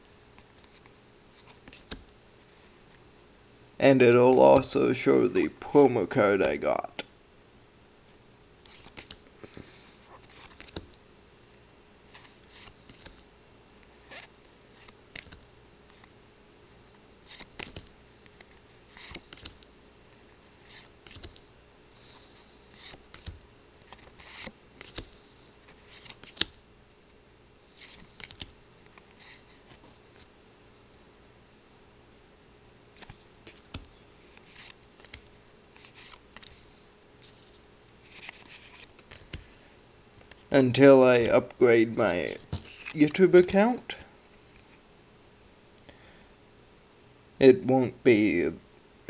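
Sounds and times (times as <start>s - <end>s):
trading cards swishing and flicking: 0.5s - 2.1s, 8.6s - 11.0s, 12.1s - 13.3s, 17.2s - 19.7s, 20.5s - 21.4s, 22.6s - 26.6s, 33.0s - 39.5s, 42.4s - 43.2s.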